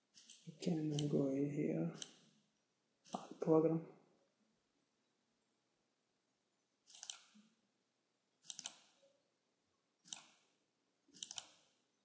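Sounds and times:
mouse buttons clicking: 6.9s - 7.4s, 8.4s - 8.9s, 10.0s - 10.4s, 11.2s - 11.6s.

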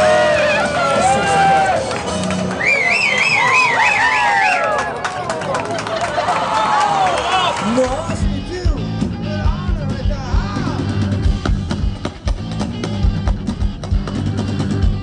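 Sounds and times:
rock band playing: 0.0s - 2.8s, 7.7s - 15.0s.

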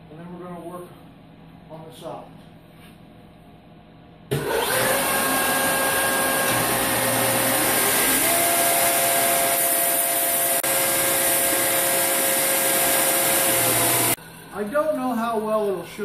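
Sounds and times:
belt grinder grinding steel: 4.5s - 14.2s.

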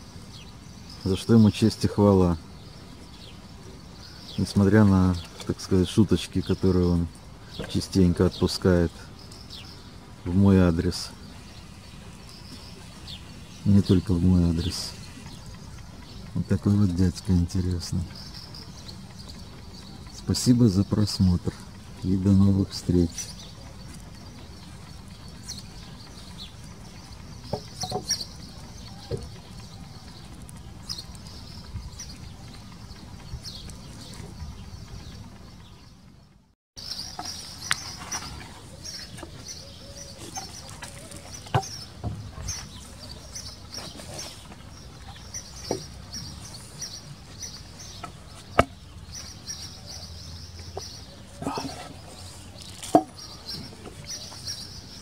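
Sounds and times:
birds chirping: 0.0s - 55.0s
outdoor background noise: 0.0s - 55.0s
knocks on wooden boards: 27.5s - 28.2s, 52.9s - 53.2s.

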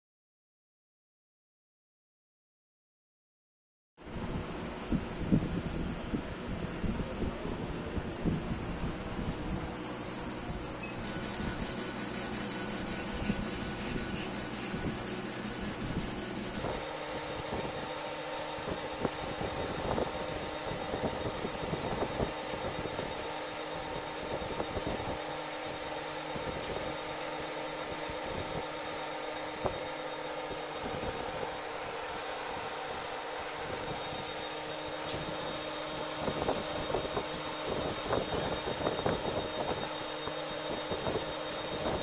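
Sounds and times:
faint motor whir: 4.0s - 42.0s
fan noise: 4.0s - 42.0s
laser cutter mechanical hum: 4.2s - 42.0s.

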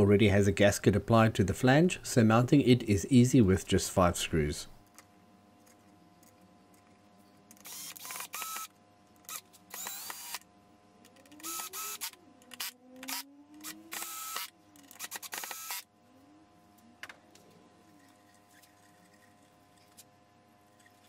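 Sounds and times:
cordless drill driving screws: 7.6s - 8.7s, 9.3s - 10.4s, 11.4s - 15.8s.

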